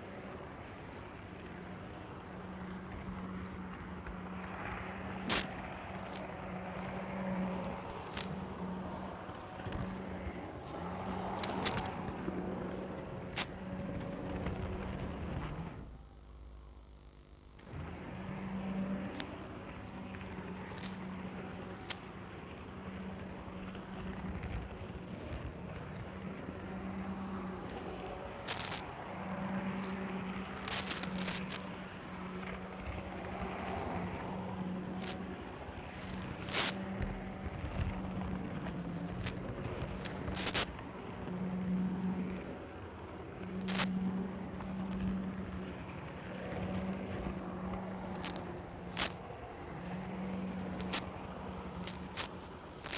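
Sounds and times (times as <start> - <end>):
camera hum and hiss: 0.0 - 52.9
sharp clicks: 5.2 - 6.3, 9.5 - 12.4, 27.6 - 29.0, 29.7 - 32.6, 36.0 - 37.1, 39.1 - 40.7, 43.5 - 44.0, 47.8 - 49.2, 49.9 - 51.1, 51.7 - 52.9.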